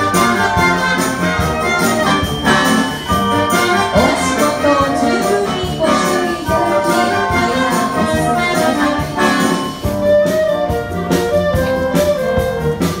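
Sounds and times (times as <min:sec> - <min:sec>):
percussion hits: 0:00.0 - 0:10.1
wind band playing: 0:00.0 - 0:13.0.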